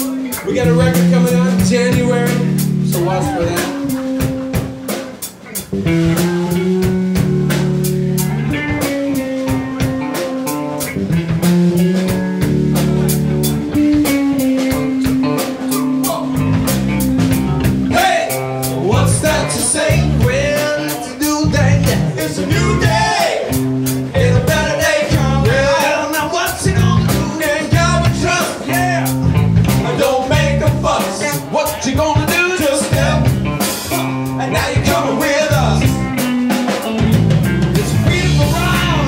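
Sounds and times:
man singing: 0:00.0 - 0:04.4, 0:17.8 - 0:37.0, 0:37.8 - 0:39.0
live rock band playing: 0:00.0 - 0:39.0.

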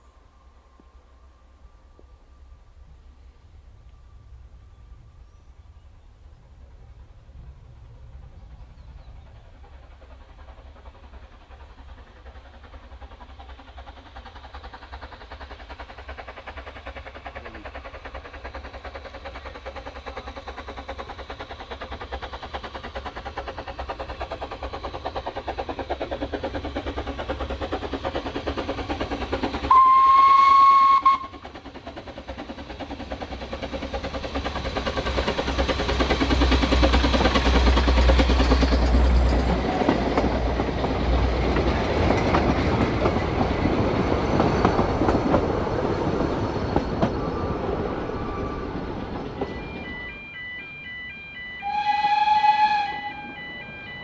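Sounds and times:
steam locomotive exhaust beats: 0:00.0 - 0:54.0
steam whistle blast: 0:29.7 - 0:31.4, 0:51.6 - 0:53.6.

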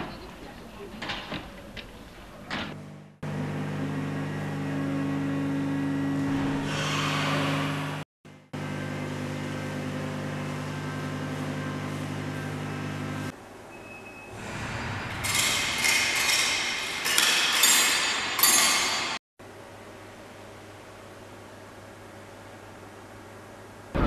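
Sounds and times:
steady machine hum: 0:02.0 - 0:13.8.

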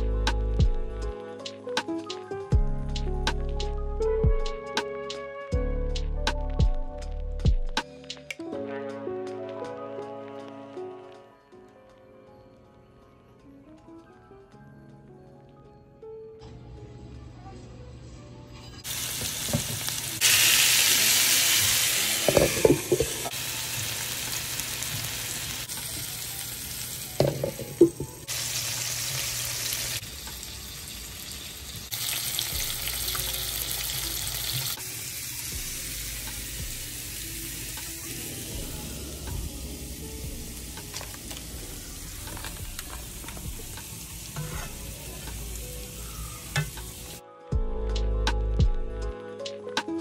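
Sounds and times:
food sizzling in a pan: 0:18.8 - 0:47.2.

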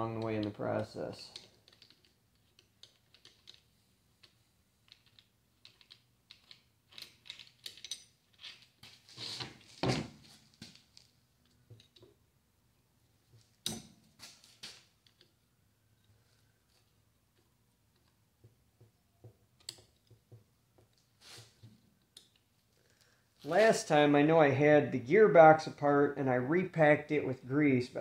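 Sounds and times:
metal clicks of hand tools: 0:00.0 - 0:00.6.

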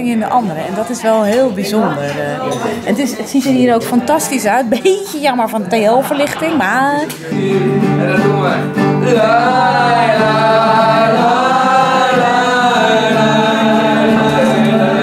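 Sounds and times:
strummed acoustic guitar: 0:06.0 - 0:15.0
man singing: 0:07.2 - 0:15.0.

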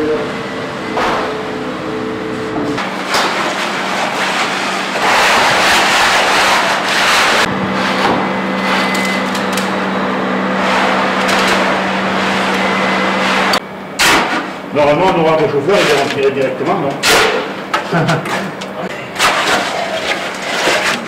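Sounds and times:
concrete pump engine hum: 0:00.0 - 0:21.0
wet concrete rushing through hose: 0:02.8 - 0:07.5, 0:19.1 - 0:21.0.

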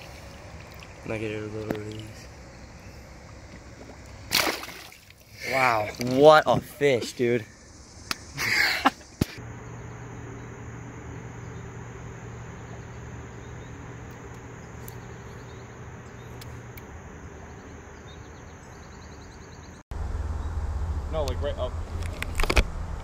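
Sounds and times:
low steady hum: 0:00.0 - 0:23.0
insect trilling: 0:04.8 - 0:19.8.

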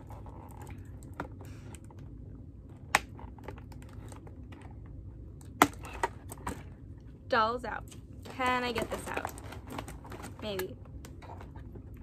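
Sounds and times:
packaging rustling: 0:08.3 - 0:11.8.

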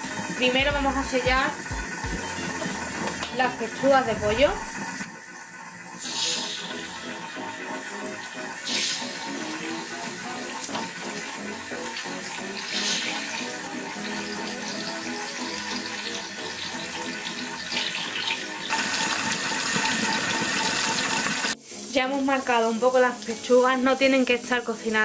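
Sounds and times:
chicken sizzling in hot oil: 0:00.0 - 0:25.0.

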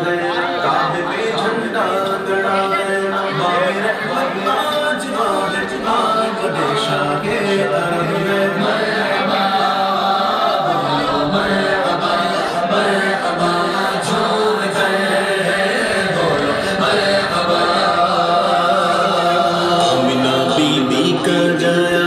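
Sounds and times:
group of voices chanting: 0:00.0 - 0:22.0.

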